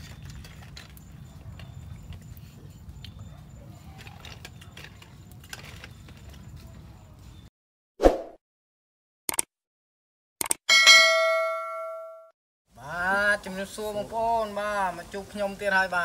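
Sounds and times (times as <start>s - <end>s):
small clicks and rustles: 0.0s - 7.0s
quick double click: 9.3s - 9.5s, 10.4s - 10.6s.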